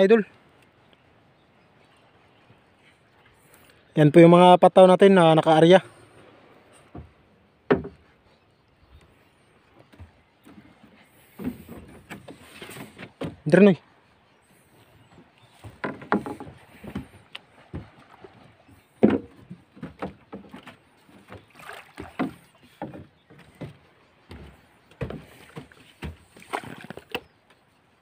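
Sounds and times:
knocks against wood: 6.9 - 8.1, 15.6 - 18.0, 19.0 - 20.7, 22.0 - 27.3
water splashing: 15.4 - 27.3.

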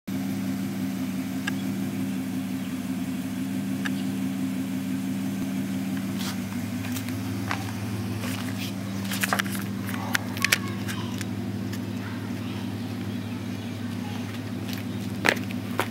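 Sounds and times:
truck engine idling: 0.1 - 15.9.

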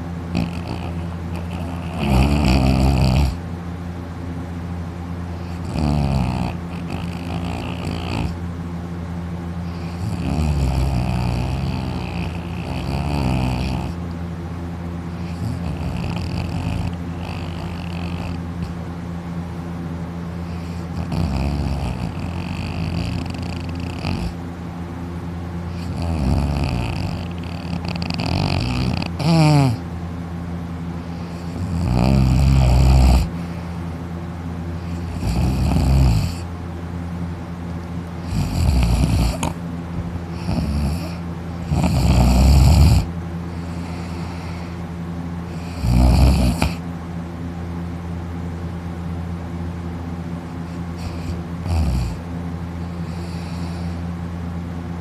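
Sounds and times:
steady low hum: 0.0 - 55.0
person snoring loudly: 0.3 - 3.4, 5.4 - 8.4, 9.7 - 14.0, 15.2 - 18.8, 20.4 - 24.4, 25.7 - 29.8, 31.1 - 33.6, 34.8 - 36.5, 38.2 - 39.6, 40.3 - 44.8, 45.5 - 46.8, 50.7 - 52.2, 52.9 - 54.0.

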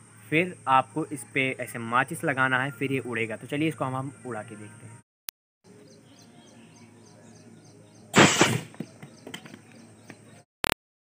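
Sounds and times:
bottle rocket whoosh: 8.2 - 8.7.

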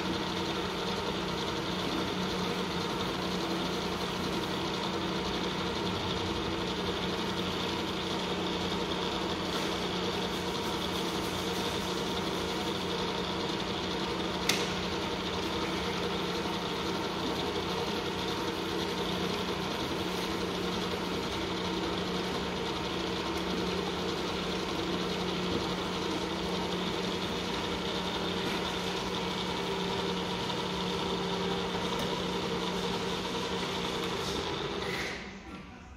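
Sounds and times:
machine switching off: 0.0 - 35.9
milling machine humming: 0.0 - 35.9.

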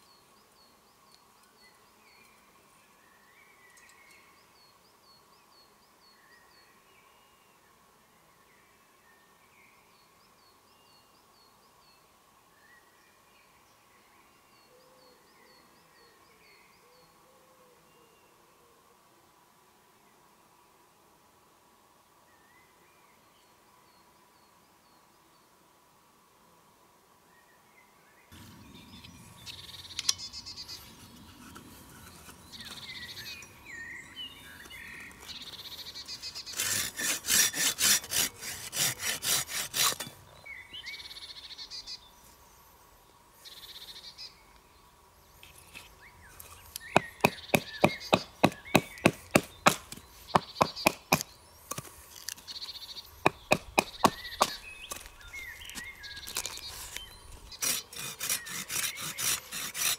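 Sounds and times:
songbirds chirping: 0.0 - 18.9, 27.2 - 59.9
knife cutting wood: 30.0 - 33.3, 36.2 - 40.2, 45.4 - 52.6, 53.2 - 59.9.

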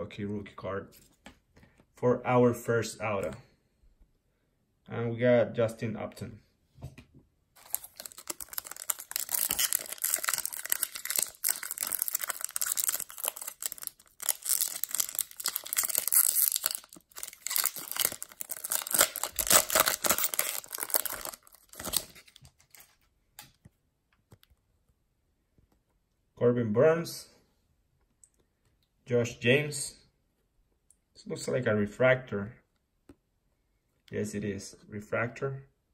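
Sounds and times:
foil wrapper tearing and crinkling: 7.6 - 23.0.

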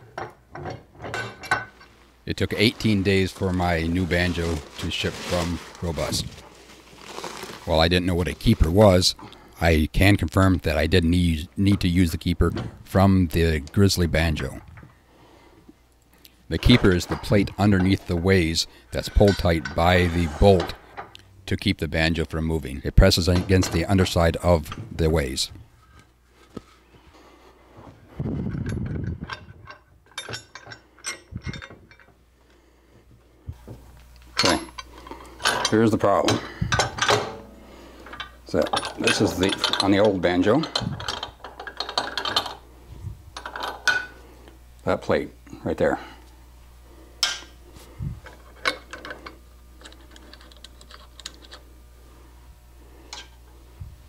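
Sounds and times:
metal clank: 0.1 - 1.8, 34.4 - 42.5
metal parts clacking: 0.2 - 1.9, 19.0 - 20.8, 28.5 - 32.2, 34.4 - 42.6, 48.2 - 51.6
metal scraping slide: 19.1 - 20.8.

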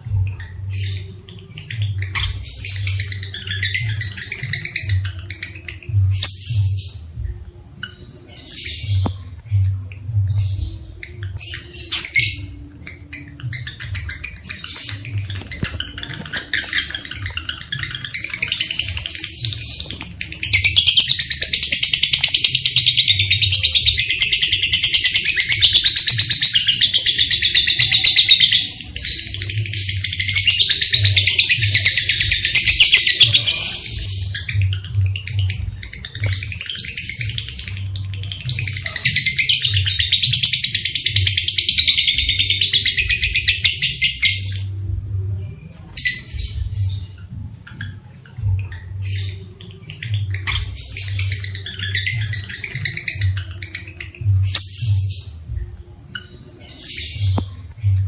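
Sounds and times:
lovebirds chirping: 0.0 - 58.0.

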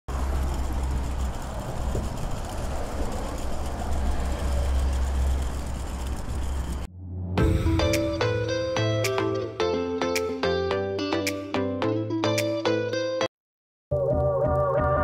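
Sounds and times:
suitcase wheels rolling over bricks: 0.1 - 6.9.

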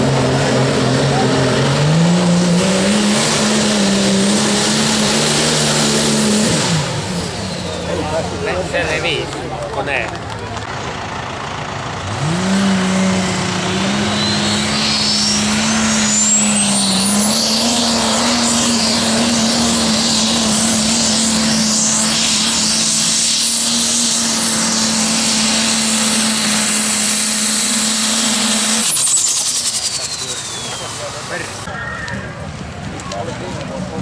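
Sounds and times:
tractor engine revving: 0.0 - 34.0
high whine rising in pitch: 12.7 - 32.3.

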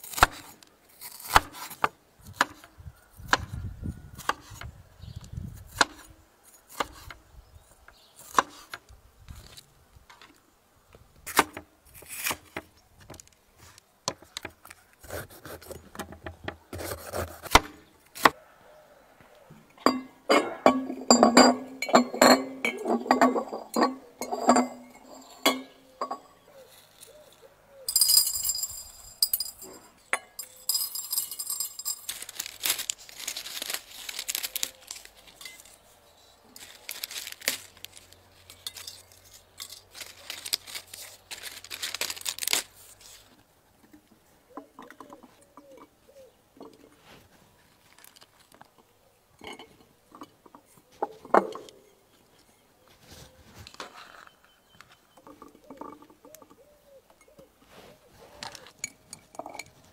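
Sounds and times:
glass clinking: 19.8 - 26.4, 27.9 - 32.2, 58.8 - 59.8
spices rattling in glass: 27.9 - 32.5.

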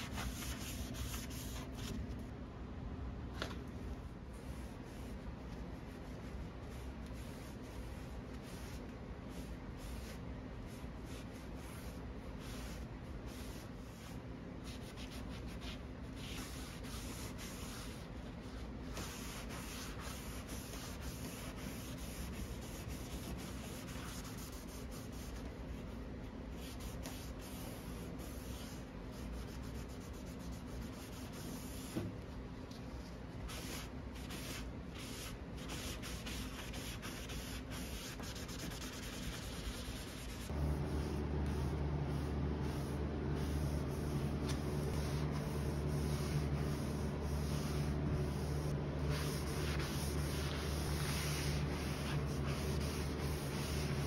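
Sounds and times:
low steady hum: 0.0 - 54.0
cloth wiping wood: 33.5 - 54.0.

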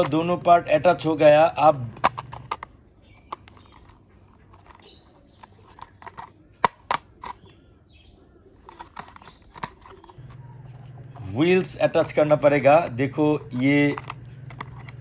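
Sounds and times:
plastic toy car clicking: 1.6 - 7.6, 8.6 - 10.2, 13.5 - 15.0.

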